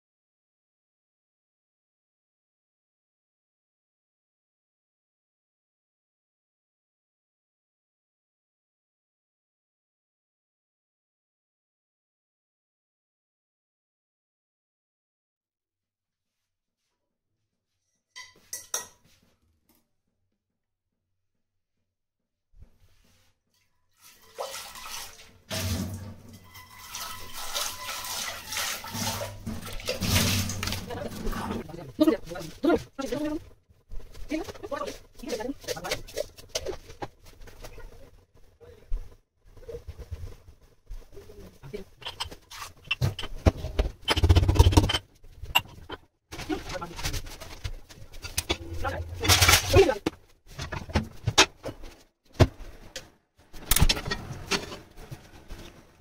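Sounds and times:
utensils being rinsed: 23.9 - 31.7, 48.1 - 50.0.

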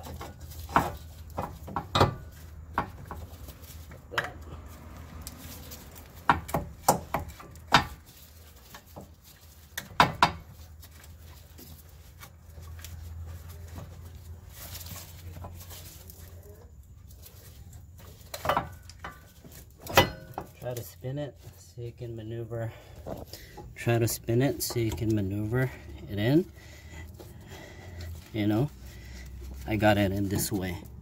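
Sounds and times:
metal clinks and knocks: 0.0 - 16.1, 17.3 - 21.6.

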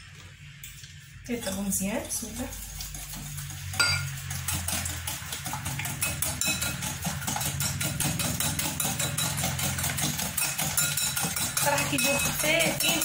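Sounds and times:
whisk clicking against glass bowl: 3.7 - 13.0.

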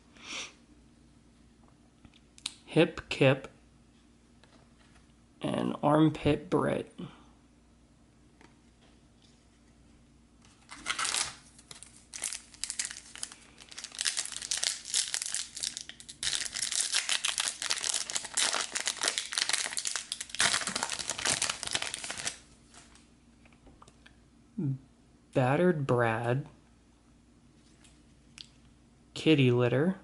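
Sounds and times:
foil wrapper crinkling and tearing: 10.6 - 22.9.

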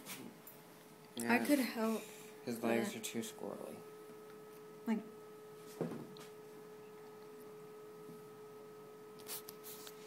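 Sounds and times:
steady electrical hum: 0.0 - 10.0
faint high whine: 0.1 - 10.0.

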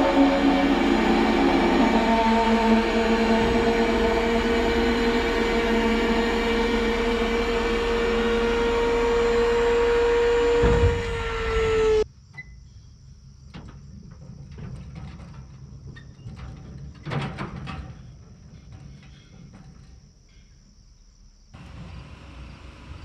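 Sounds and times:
hydraulic pump whining: 0.0 - 12.0
low engine rumble: 0.0 - 12.0, 21.6 - 23.0
crickets chirring: 11.6 - 21.6.

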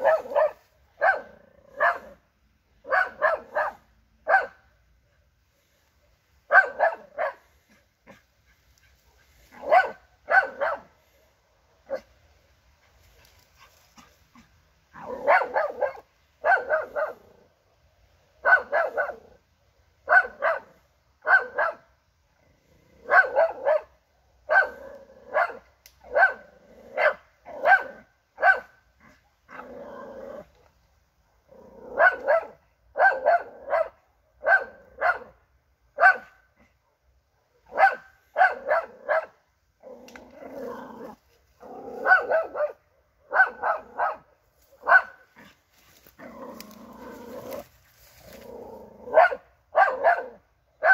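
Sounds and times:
dog barking: 0.0 - 2.2, 2.8 - 4.7, 6.5 - 7.5, 9.5 - 11.0, 11.8 - 12.1, 14.0 - 17.2, 18.4 - 19.2, 20.0 - 21.9, 23.0 - 28.8, 31.9 - 35.4, 36.0 - 39.4, 42.0 - 45.6, 49.0 - 50.9.

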